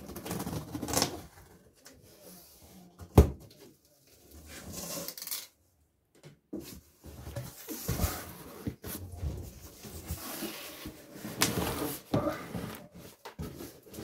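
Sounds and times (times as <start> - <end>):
cardboard rustling and scraping: 6.6 - 14.0.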